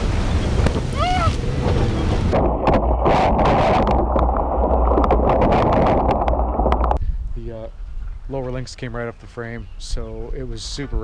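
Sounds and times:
wind buffeting microphone: 0.0 - 11.0
person shouting: 1.0 - 1.4.

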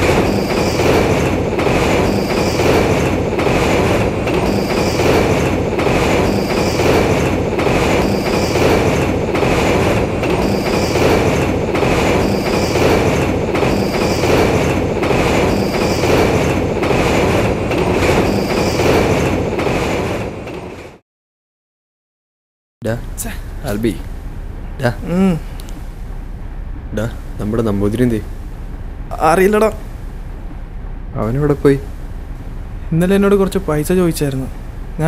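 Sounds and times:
passenger train rumbling on rails: 0.0 - 21.0, 22.9 - 35.0
train wheels clacking: 0.0 - 21.0.

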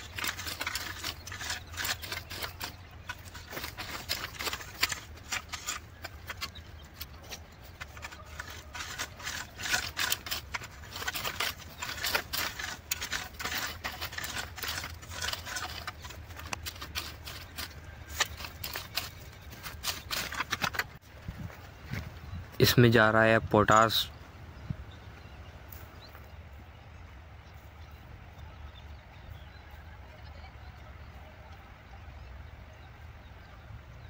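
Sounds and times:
rake scraping through dry soil: 0.0 - 22.9.

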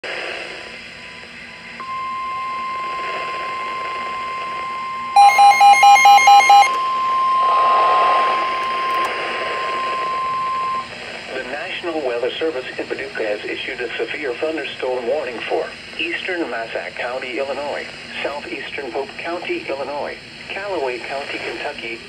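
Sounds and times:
radio hiss: 0.1 - 5.0, 6.6 - 22.0
steady alarm tone: 1.0 - 11.6
rapid alert beeps: 5.1 - 10.9.

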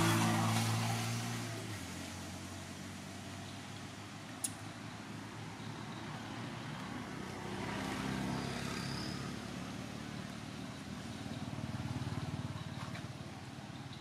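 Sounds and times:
outdoor background noise: 0.0 - 14.0
vehicle engine hum: 0.0 - 14.0.

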